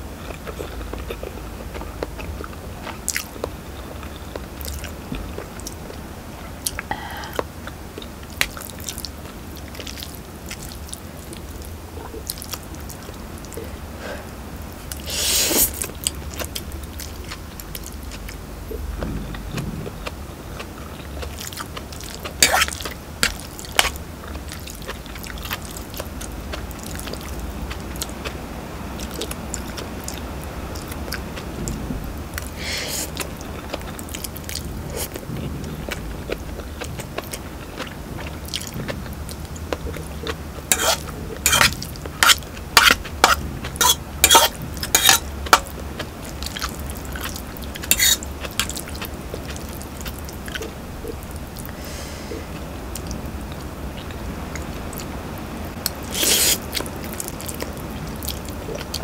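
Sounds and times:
chewing and slurping noodles: 14.8 - 55.1, 55.8 - 59.0
fork clinking in metal pot: 40.7 - 45.2, 47.9 - 48.2.

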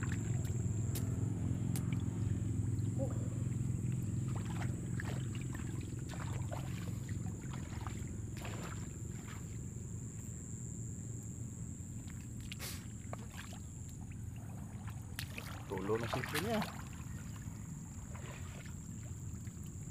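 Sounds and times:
clicks and squelches in wet mud: 0.0 - 2.1, 12.0 - 14.1, 15.0 - 17.1.

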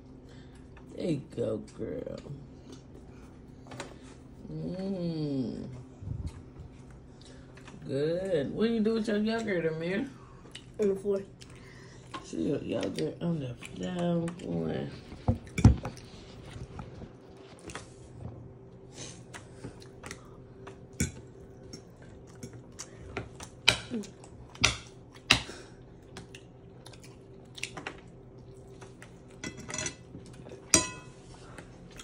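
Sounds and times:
faint steady hum: 0.0 - 32.0
chewing: 10.3 - 18.1, 18.7 - 25.4, 26.0 - 29.4
small table noises: 28.7 - 31.6.

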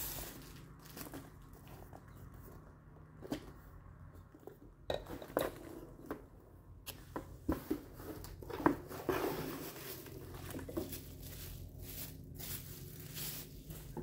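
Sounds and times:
rustling: 7.5 - 14.0.

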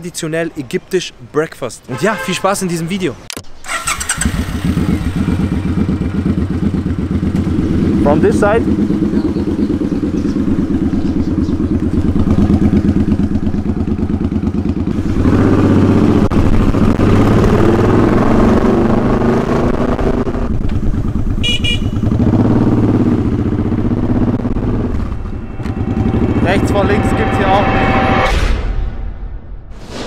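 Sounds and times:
horn beep: 1.9 - 2.6, 21.4 - 22.1
motorcycle engine running: 3.7 - 28.1
loud rushing noise: 23.2 - 30.0.

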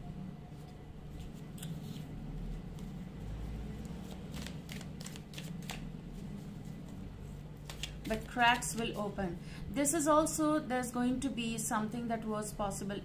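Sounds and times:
low steady hum: 0.0 - 13.0
cards being shuffled: 0.6 - 9.1
quick card slaps: 4.1 - 5.9, 7.6 - 8.8.

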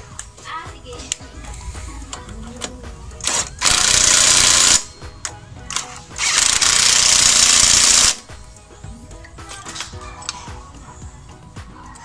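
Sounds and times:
impact wrench hammering: 3.3 - 4.9, 6.2 - 8.3.

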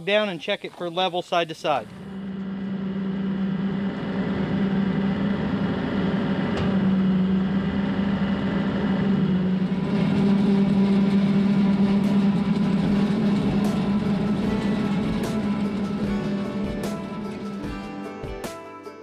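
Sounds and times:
tractor diesel engine mowing: 0.0 - 17.9.

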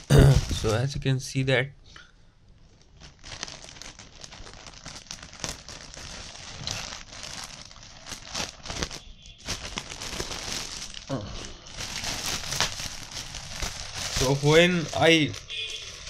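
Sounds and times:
plastic packaging crinkling: 0.0 - 1.0, 2.6 - 16.0.

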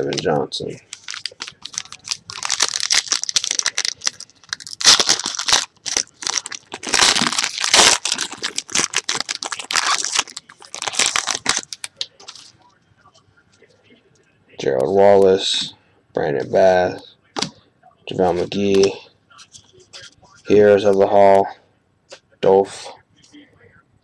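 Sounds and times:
foil wrapper tearing and crinkling: 0.9 - 12.5.

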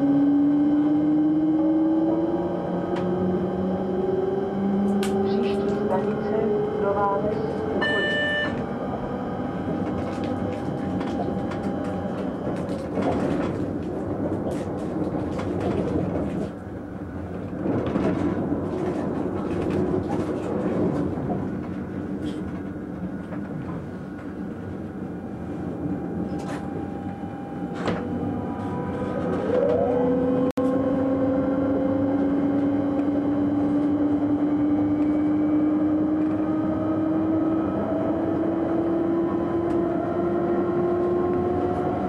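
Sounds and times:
train wheels rumbling on rail: 1.0 - 30.5.

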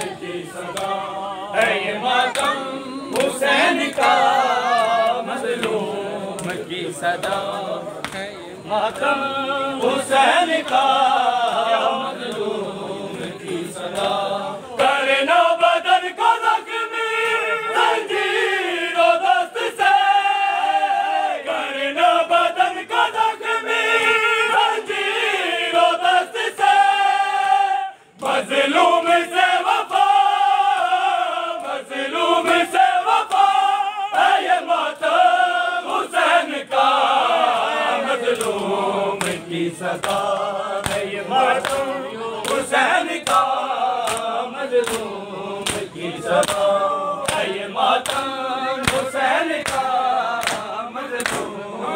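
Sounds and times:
men chanting in unison: 0.0 - 51.9
chest-beating slaps: 40.0 - 51.6.

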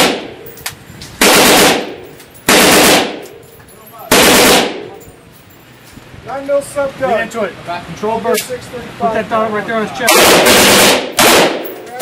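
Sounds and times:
automatic rifle fire: 0.0 - 0.3, 1.2 - 3.2, 4.1 - 4.9, 10.1 - 11.8.

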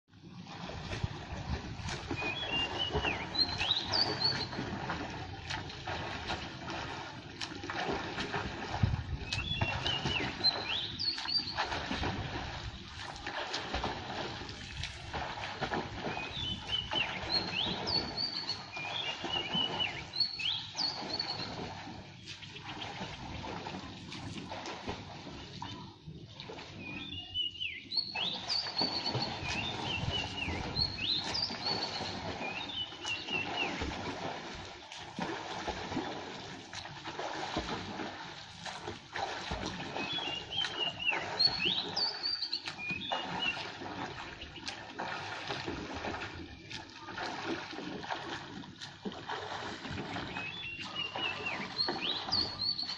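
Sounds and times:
pool water wash: 0.1 - 52.9
swimmer splashing: 0.1 - 52.9
bird chirping: 2.2 - 4.6, 26.9 - 33.8, 40.0 - 43.6, 50.2 - 52.9.

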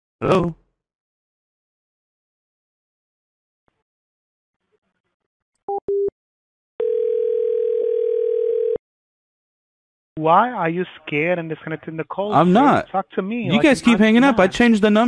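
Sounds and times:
telephone ringing tone: 6.8 - 8.8.

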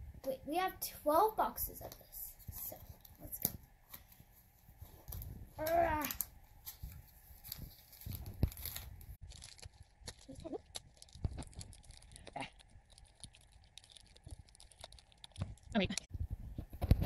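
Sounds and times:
pouch rustling and tearing: 5.0 - 12.3.

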